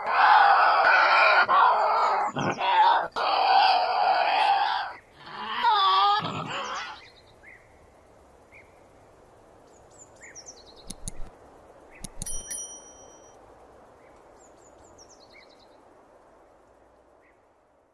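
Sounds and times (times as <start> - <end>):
birds chirping: 1.6 - 3.2, 9.6 - 13.3
mouse clicks: 10.8 - 11.3, 12.0 - 12.4
bright bell-like ding: 12.2 - 13.4.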